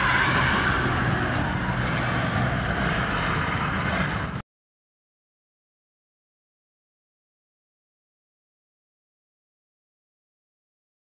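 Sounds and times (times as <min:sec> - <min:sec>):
road noise: 0:00.0 - 0:04.4
truck engine: 0:00.0 - 0:04.4.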